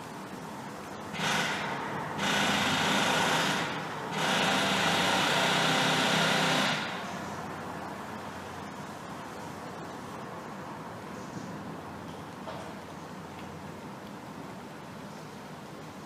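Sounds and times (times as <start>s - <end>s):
steady background hiss: 0.0s - 16.0s
small motor running: 1.2s - 7.0s.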